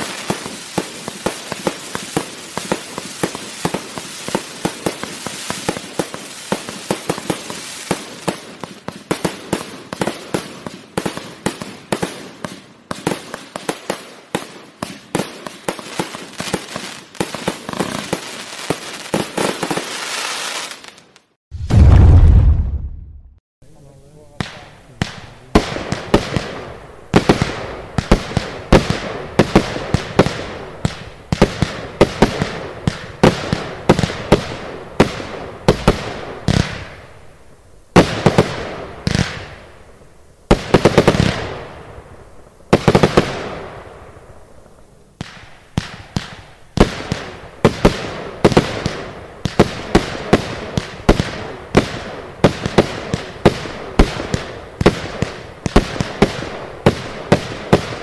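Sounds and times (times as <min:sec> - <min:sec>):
fireworks rushing bursts: 0:00.0 - 0:41.9.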